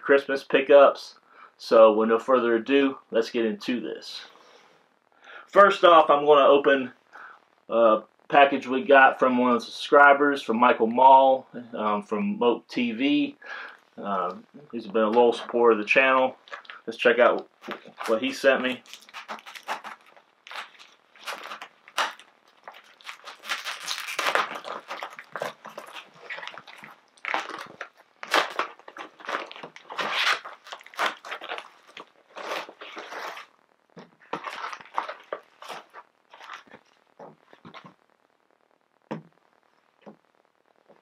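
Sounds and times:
package wrapping tearing and crinkling: 16.4 - 16.9, 17.5 - 38.0
fabric rustling: 17.5 - 38.0.

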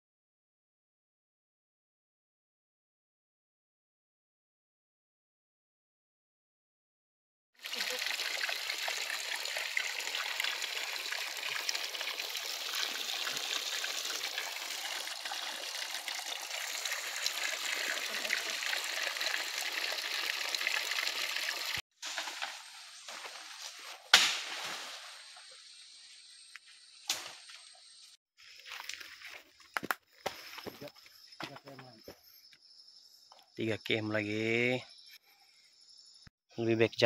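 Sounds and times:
stream flowing: 7.6 - 21.8.

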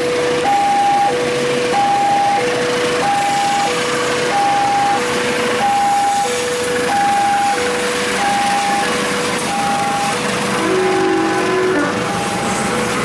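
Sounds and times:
freight train passing: 0.0 - 13.0
level crossing two-tone alarm: 0.2 - 12.8.

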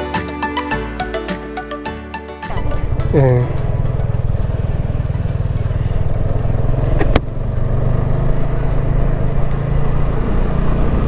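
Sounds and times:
motorcycle engine running: 2.5 - 11.0.

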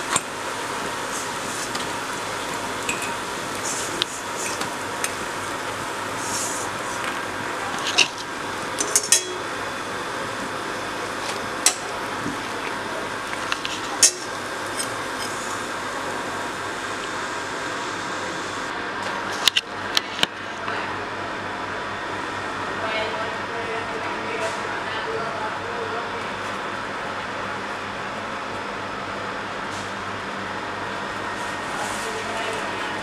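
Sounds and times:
steady hiss: 0.0 - 7.5
steel bowl clinking: 2.8 - 3.4, 8.8 - 9.6.

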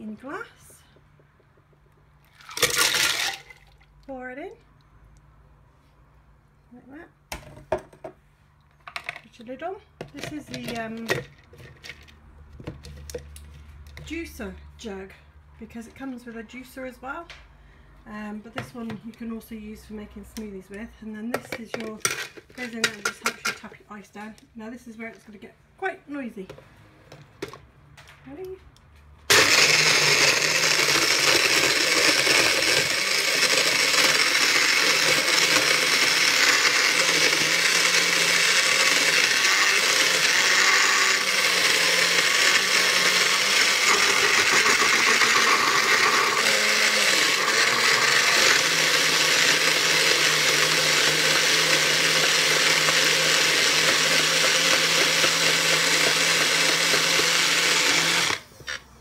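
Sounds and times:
blender running: 2.3 - 3.7, 29.3 - 58.8.

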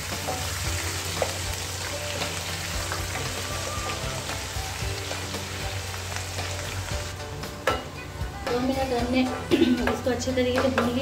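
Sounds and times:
sizzling in hot oil: 0.0 - 7.9.

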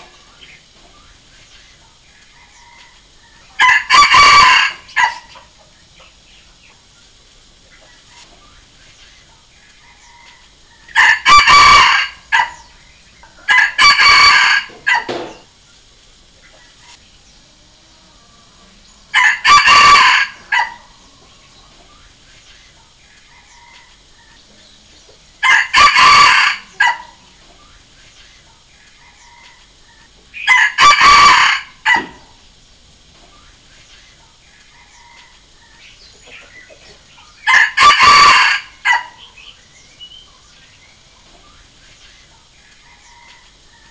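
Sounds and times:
rooster crowing: 2.3 - 5.4, 9.8 - 12.7, 13.4 - 15.4, 17.8 - 21.3, 23.3 - 24.4, 25.4 - 27.4, 30.4 - 32.4, 34.7 - 35.8, 37.4 - 39.5, 42.8 - 43.9.

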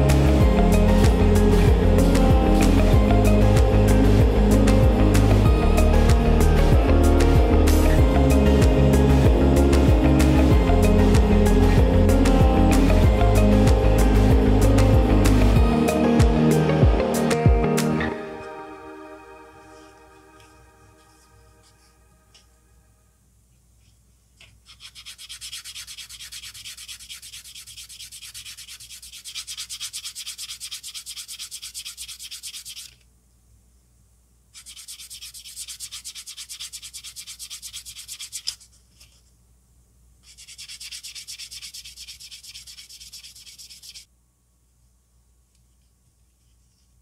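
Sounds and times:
sanding sponge rubbing plastic: 24.6 - 33.0, 34.6 - 39.1, 40.2 - 44.1.

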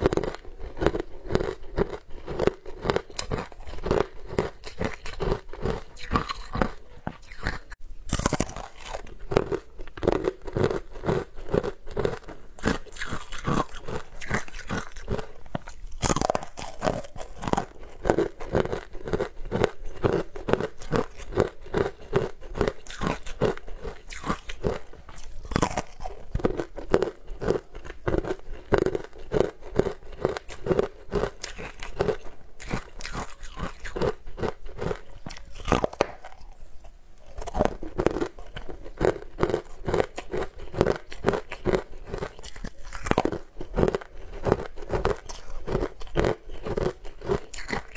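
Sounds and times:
crunching frozen ice: 0.0 - 36.6, 37.3 - 47.9.

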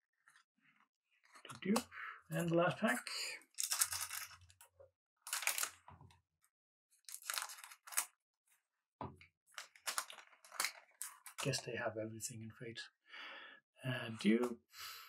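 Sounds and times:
wrapper tearing and crinkling: 3.5 - 4.4, 5.3 - 5.8, 7.1 - 8.1, 9.7 - 11.2.

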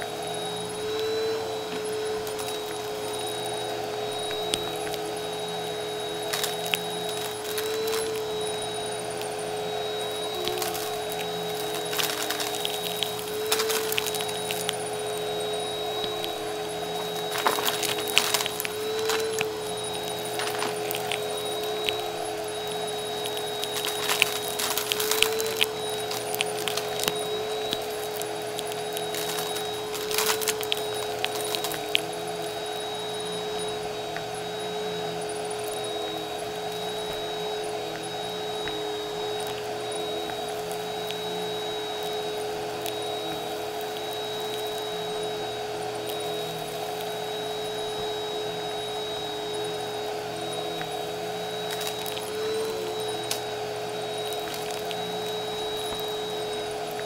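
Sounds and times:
vacuum cleaner motor whine: 0.0 - 57.0
crumbs rattling through nozzle: 0.4 - 33.7, 51.5 - 53.5, 54.1 - 57.0.

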